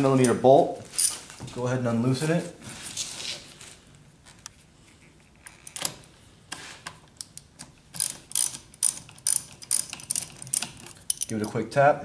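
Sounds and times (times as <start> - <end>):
ratchet wrench clicking: 8.0 - 11.3.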